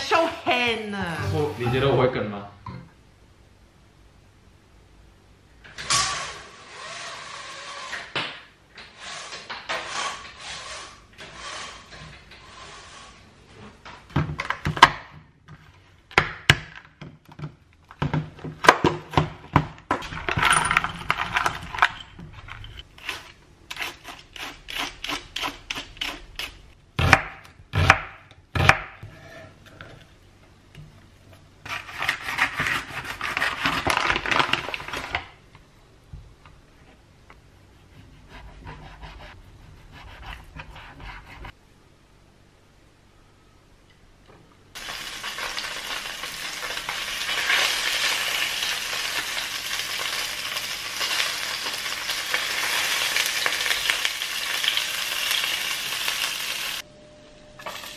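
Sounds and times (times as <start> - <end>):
foil bag crinkling: 33.3 - 35.4.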